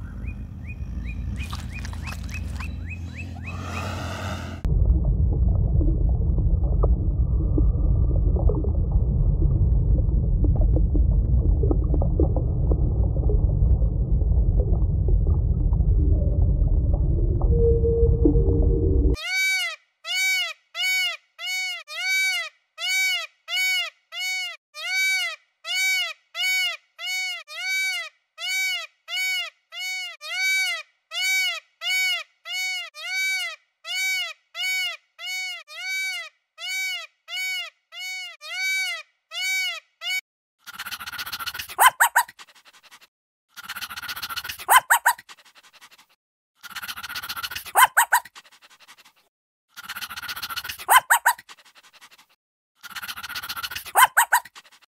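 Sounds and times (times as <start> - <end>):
peacock calling: 0.0 - 4.7
puppy sound clip: 41.5 - 43.0, 44.1 - 46.1, 46.7 - 49.2, 50.0 - 52.3, 53.0 - 54.8.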